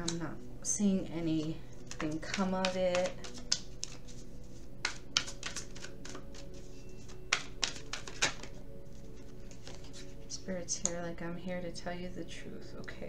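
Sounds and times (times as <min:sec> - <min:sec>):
cards being shuffled: 0:00.0 - 0:00.2, 0:01.2 - 0:11.0.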